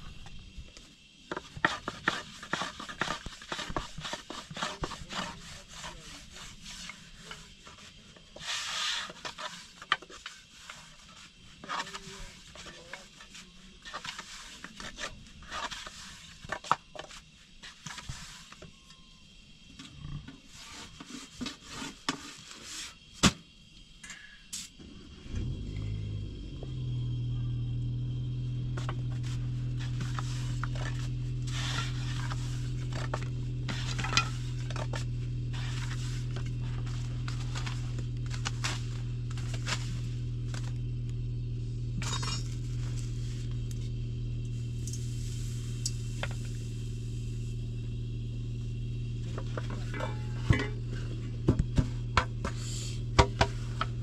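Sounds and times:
steady low hum: 0.0 - 8.4, 24.6 - 54.0
dough scraping: 1.3 - 18.5, 28.7 - 40.8, 49.2 - 54.0.

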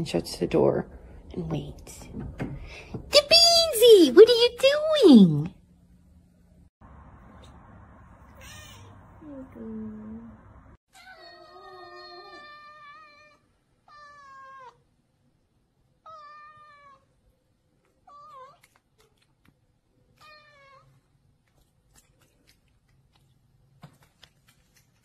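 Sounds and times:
cat meowing: 8.3 - 9.0, 10.9 - 14.8, 16.0 - 17.1, 20.2 - 21.0.

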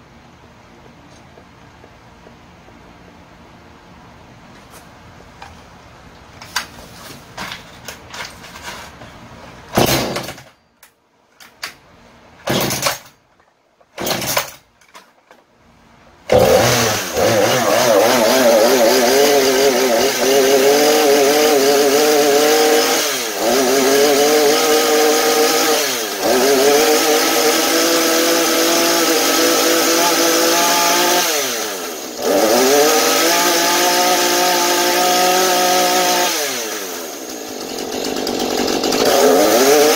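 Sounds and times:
chainsaw engine running: 16.3 - 39.9.

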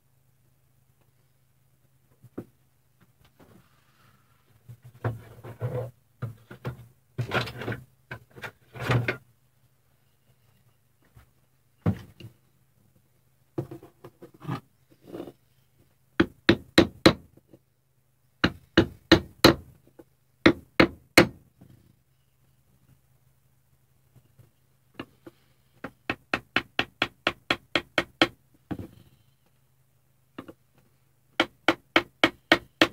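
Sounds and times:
handling of wood and tools: 3.3 - 9.2
small hammer tapping wooden block: 30.4 - 30.6, 31.4 - 32.9.

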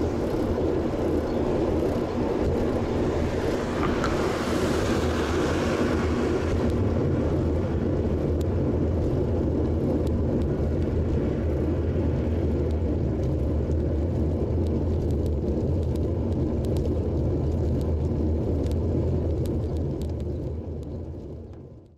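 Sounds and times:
bicycle tyre road rumble: 0.0 - 21.9
wind buffeting microphone: 0.0 - 21.9.

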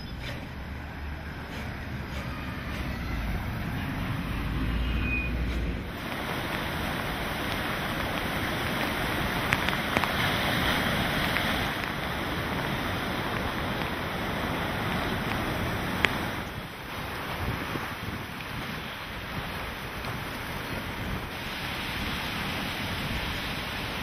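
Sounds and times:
heavy surf on rocks: 0.0 - 24.0
wind and rain: 0.0 - 24.0
car driving past: 0.5 - 7.1.

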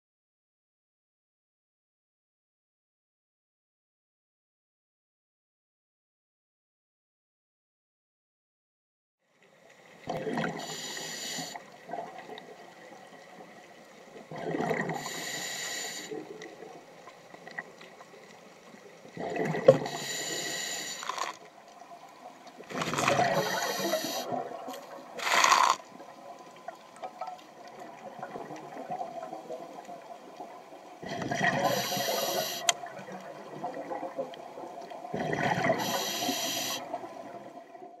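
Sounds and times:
underwater exhaled bubbles: 9.9 - 38.0.

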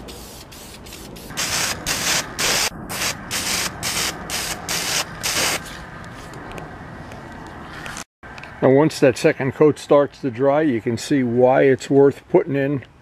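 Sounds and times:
aerosol spray can hissing: 0.0 - 5.6.

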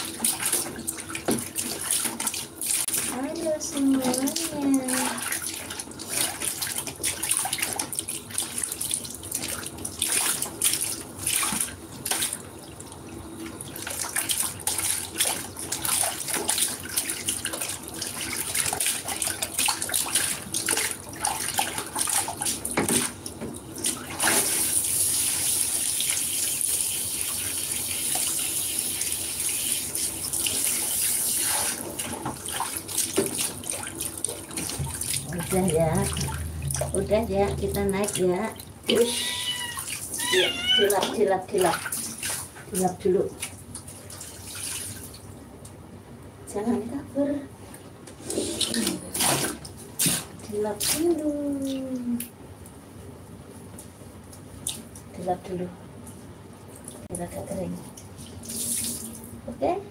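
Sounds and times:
water splashing in plastic tub: 0.0 - 45.6, 48.6 - 52.4
shower water hissing: 24.2 - 31.8.

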